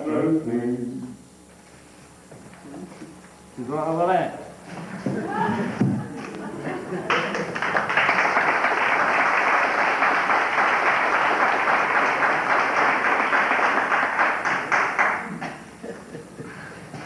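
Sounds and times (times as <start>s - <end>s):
audience applauding: 6.7s - 15.7s.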